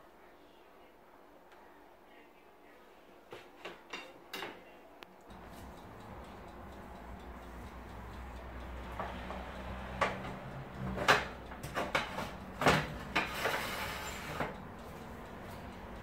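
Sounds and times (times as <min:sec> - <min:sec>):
metal oven rack clattering: 0:10.9 - 0:14.6.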